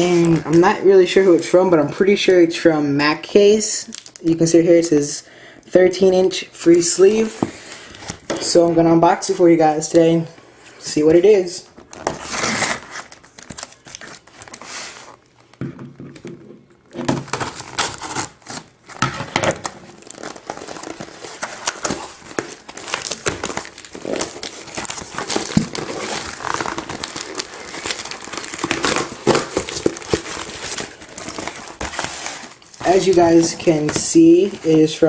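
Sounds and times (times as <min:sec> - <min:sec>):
paper packaging rustling and crinkling: 0:00.0 - 0:01.6, 0:11.0 - 0:15.6, 0:16.2 - 0:35.0.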